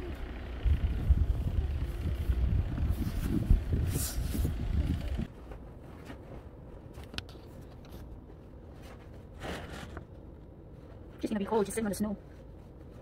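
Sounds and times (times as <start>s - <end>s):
wind buffeting microphone: 0.5s - 5.3s.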